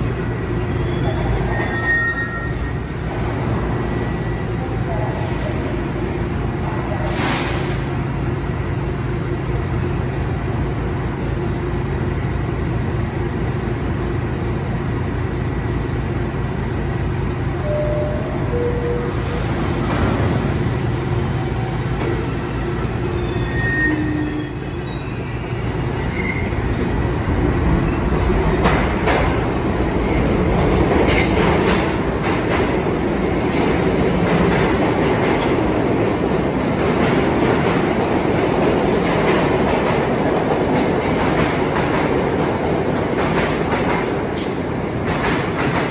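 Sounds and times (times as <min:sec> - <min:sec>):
train wheels squealing: 0:00.0 - 0:02.8, 0:22.6 - 0:28.0
subway train humming: 0:00.0 - 0:45.9.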